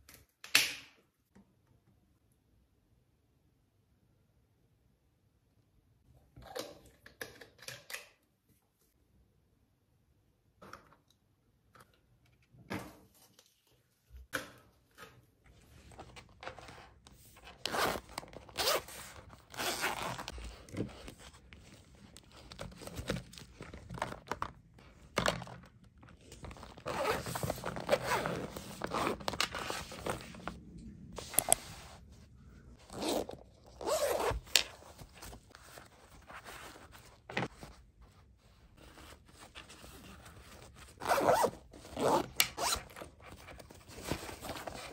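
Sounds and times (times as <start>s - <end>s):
zippers pulled open and shut: 17.6s - 20.4s, 26.5s - 30.6s, 32.8s - 34.9s, 40.9s - 43.1s.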